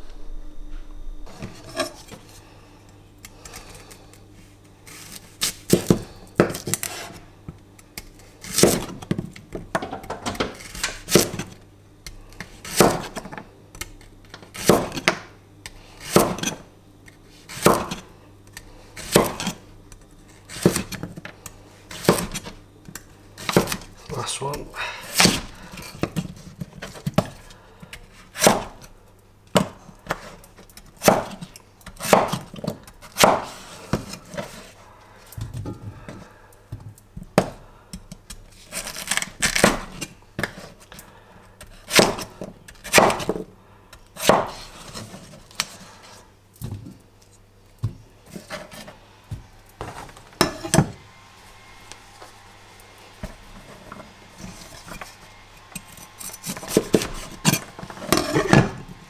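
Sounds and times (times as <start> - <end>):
knife chopping on wooden board: 12.6 - 13.3, 14.6 - 15.2, 16.0 - 16.6, 17.5 - 18.0, 19.0 - 19.6, 21.9 - 22.5, 23.4 - 23.8, 28.3 - 28.8, 31.0 - 34.2, 41.9 - 43.5, 44.2 - 45.1.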